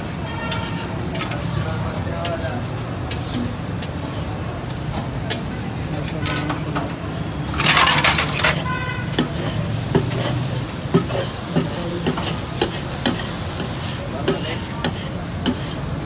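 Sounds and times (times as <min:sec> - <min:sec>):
liver sizzling in oil: 0:09.0 - 0:16.0.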